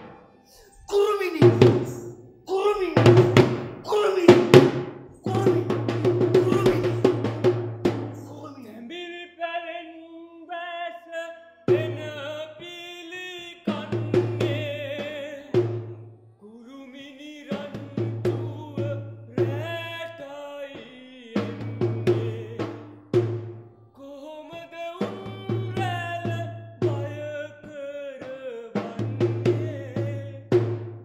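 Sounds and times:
wavering singing voice: 0.0s - 4.6s, 5.2s - 7.4s, 8.2s - 22.9s, 23.9s - 30.7s
hand drum: 3.0s - 8.2s, 25.0s - 27.2s.

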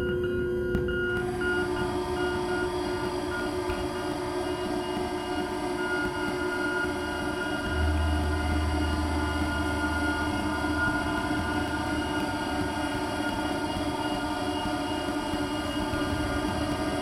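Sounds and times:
steady synthesizer tones: 0.0s - 17.0s
deep bass tone: 6.4s - 17.0s.

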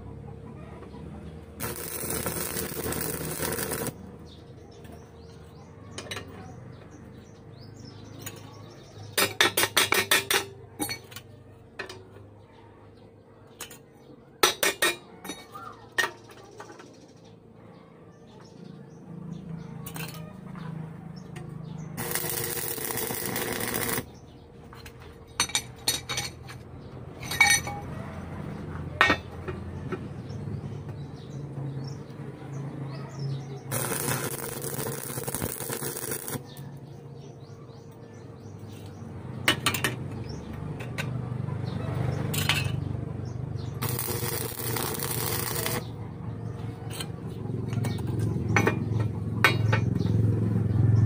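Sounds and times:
welding arc crackling: 1.6s - 4.0s, 22.0s - 24.1s, 33.7s - 36.6s, 43.8s - 45.9s.

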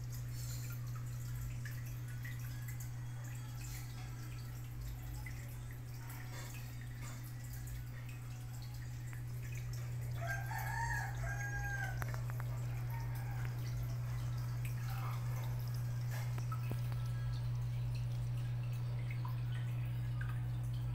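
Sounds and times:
aquarium pump humming: 0.0s - 20.9s
water dripping and trickling: 0.0s - 20.9s
rooster crowing: 10.2s - 14.1s.

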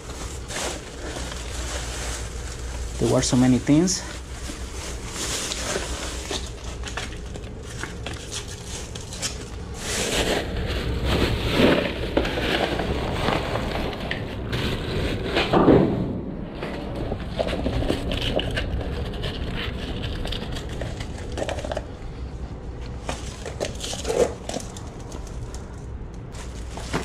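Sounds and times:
plastic and foil crinkling: 0.0s - 15.6s, 17.0s - 27.0s
loud bump: 15.4s - 16.7s.

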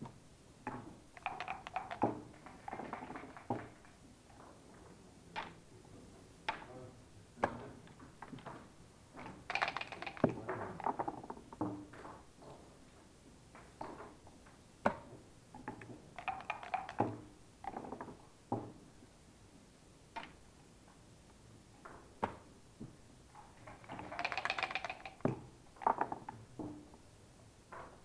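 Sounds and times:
checkers and dice clattering: 1.1s - 3.9s, 9.2s - 11.5s, 15.8s - 18.1s, 23.6s - 26.4s.

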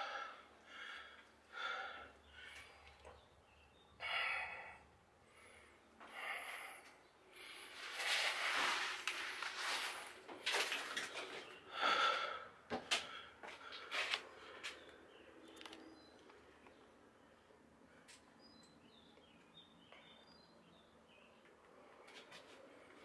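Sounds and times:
person breathing heavily: 0.0s - 3.0s, 4.0s - 9.5s, 11.7s - 14.9s.

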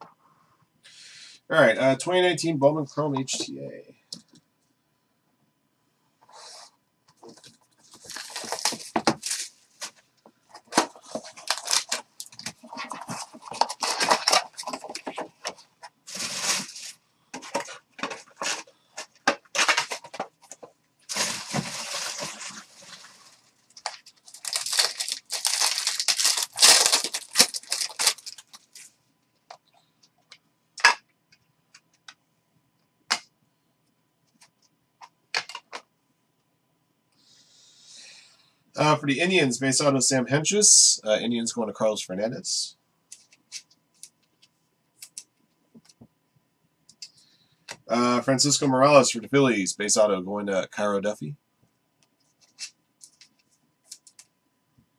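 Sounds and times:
rustling handling noise: 6.2s - 30.9s
wrappers tearing and crinkling: 7.9s - 9.9s, 10.7s - 15.1s, 16.1s - 17.0s, 21.1s - 28.9s.

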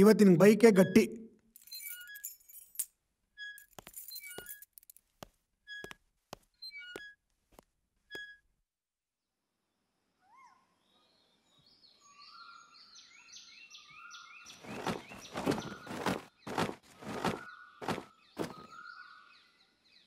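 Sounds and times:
light metallic clinks: 1.6s - 5.0s
birds chirping: 10.5s - 20.0s.

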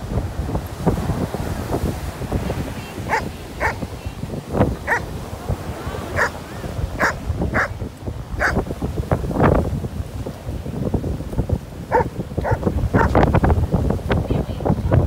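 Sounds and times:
dog barking: 3.1s - 3.8s, 4.8s - 5.1s, 6.2s - 6.4s, 7.0s - 7.8s, 8.4s - 8.6s, 11.9s - 13.2s.

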